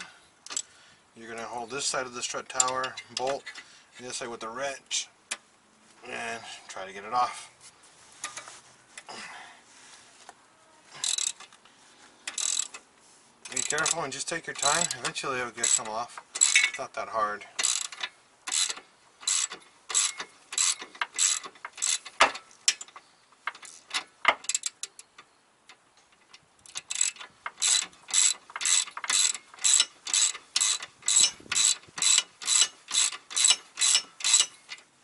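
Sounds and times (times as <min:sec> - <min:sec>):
hand ratchet clicking: 0:00.4 - 0:00.7, 0:11.0 - 0:11.5, 0:12.3 - 0:12.8, 0:13.5 - 0:16.8, 0:17.6 - 0:34.9.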